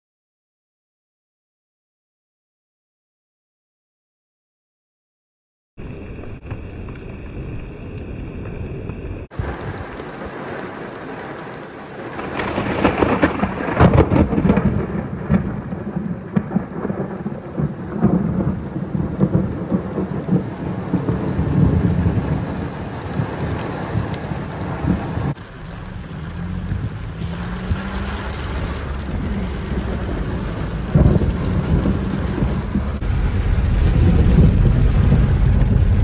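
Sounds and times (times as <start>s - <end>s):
thunder rumbling and cracking: 9.2s - 36.0s
heavy rain falling: 9.3s - 36.0s.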